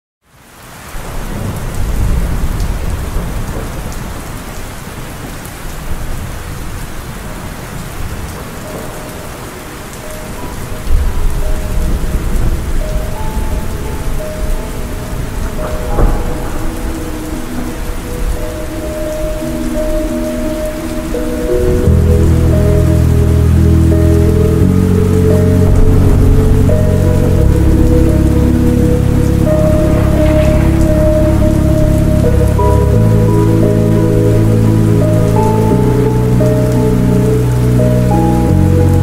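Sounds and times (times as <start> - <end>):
steady rain: 0.2 - 39.0
rolling thunder: 0.9 - 39.0
slow reverb-heavy music: 5.5 - 39.0.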